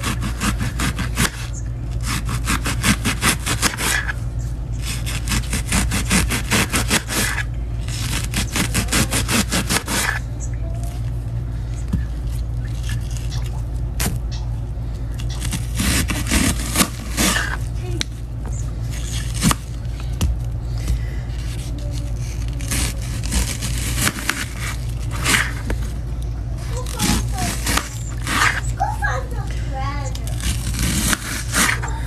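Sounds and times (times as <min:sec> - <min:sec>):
knife sawing through onion: 0:00.0 - 0:04.2, 0:04.8 - 0:10.2, 0:15.3 - 0:17.7, 0:21.3 - 0:25.7, 0:26.7 - 0:28.8, 0:30.2 - 0:31.8.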